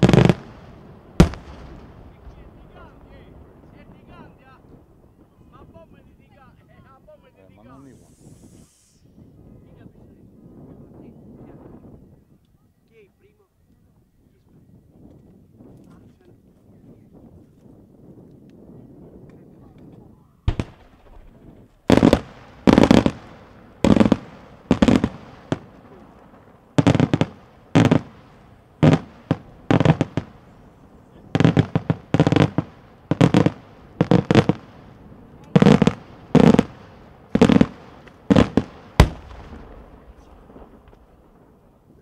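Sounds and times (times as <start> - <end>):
fireworks bursting: 0.0 - 6.5, 7.2 - 9.2, 20.5 - 42.0.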